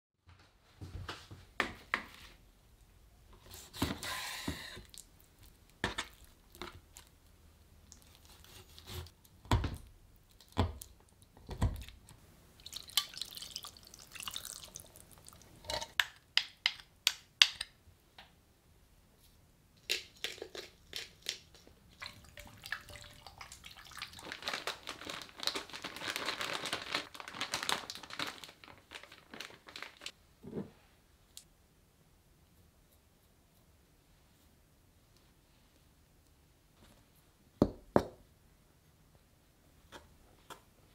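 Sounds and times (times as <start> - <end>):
liquid dripping: 12.6 - 15.6, 20.9 - 24.3.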